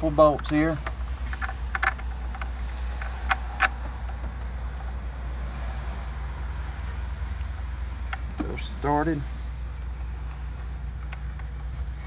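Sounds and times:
light clicks of bolts: 0.0 - 5.0.

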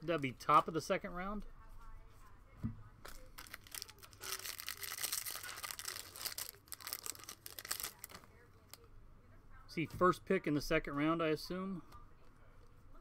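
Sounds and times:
foil wrapper crinkling and tearing: 3.1 - 8.8.

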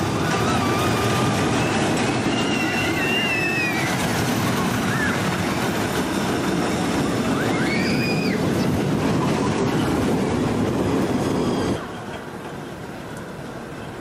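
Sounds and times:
high squeal: 0.0 - 9.8
roller coaster wheels rumbling: 0.0 - 14.0.

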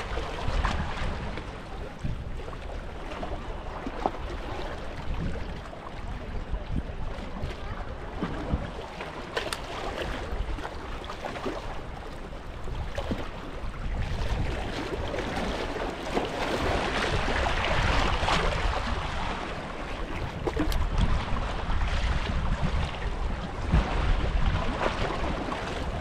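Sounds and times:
wind on microphone: 0.0 - 26.0.

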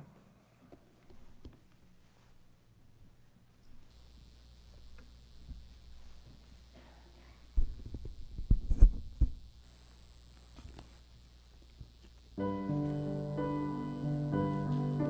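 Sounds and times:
keyboard playing chords: 12.4 - 15.0.

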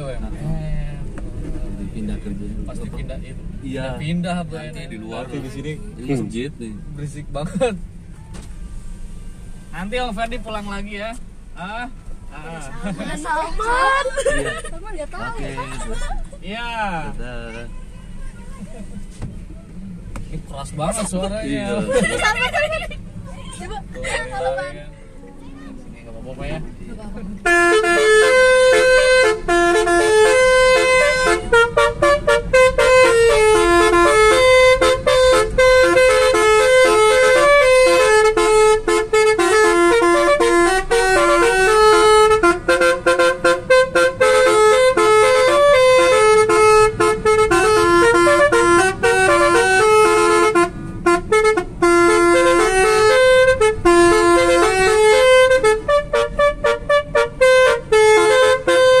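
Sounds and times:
musical car air horn: 27.4 - 59.0.

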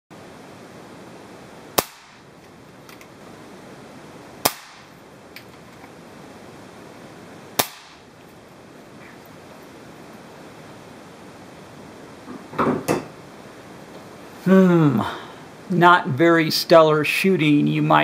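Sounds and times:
air pistol shots: 1.8 - 2.3, 4.4 - 4.9, 7.6 - 8.0.

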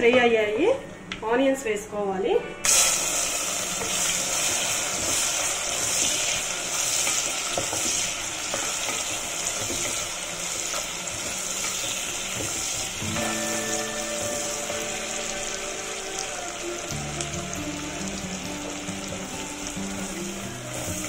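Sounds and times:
onions sizzling in oil: 2.6 - 21.0.

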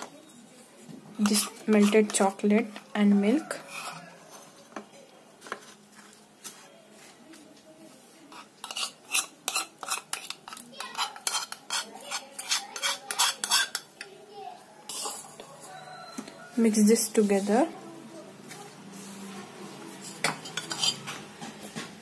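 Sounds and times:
metal spoon scraping a pan: 1.2 - 4.8, 8.3 - 14.1, 14.8 - 17.8, 18.9 - 21.3.

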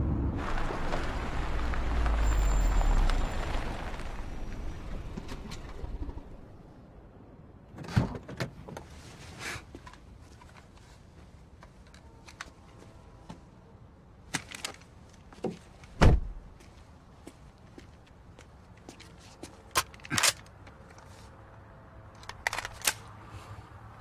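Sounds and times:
small clicks and rustles: 22.1 - 23.1.

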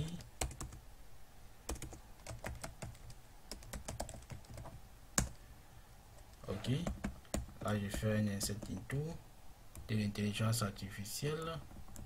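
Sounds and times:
typing on computer keyboard: 0.0 - 0.8, 1.7 - 5.4, 6.8 - 8.8.

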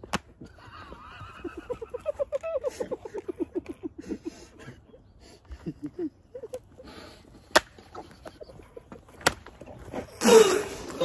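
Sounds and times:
bursts of laughter: 0.6 - 7.0.

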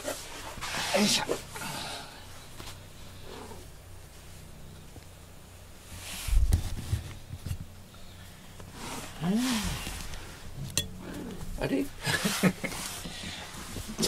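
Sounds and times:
camera brushing against fur: 5.9 - 7.6, 12.1 - 14.0.

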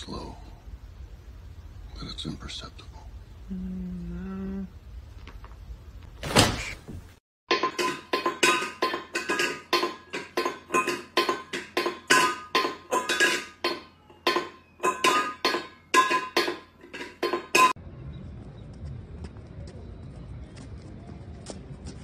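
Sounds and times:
metal bowl clanking on tile: 7.5 - 17.8.

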